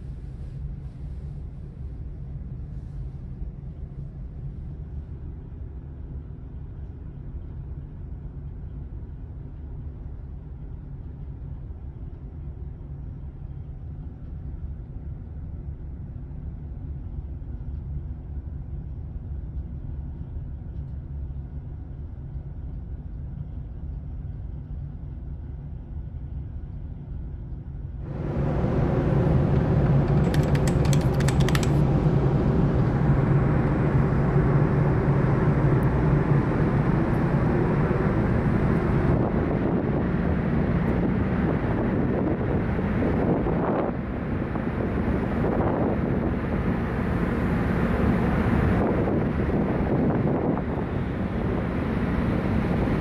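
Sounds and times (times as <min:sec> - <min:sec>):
ship engines rumbling: 0:28.0 - 0:53.0
ship deck noise: 0:28.1 - 0:32.2
wind on microphone: 0:28.1 - 0:53.0.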